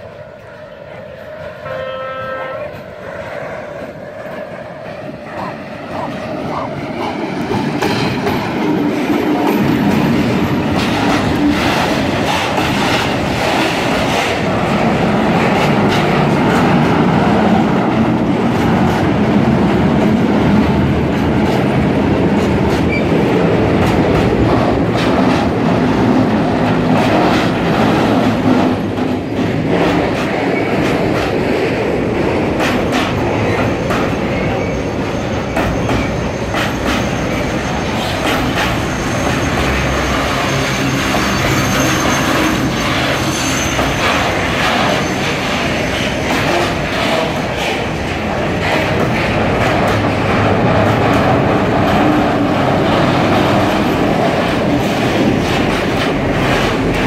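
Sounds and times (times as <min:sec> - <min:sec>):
diesel locomotive passing under power: 0:00.0 - 0:57.0
locomotive horn blast: 0:01.6 - 0:02.9
faint wheel squeal: 0:38.7 - 0:45.4.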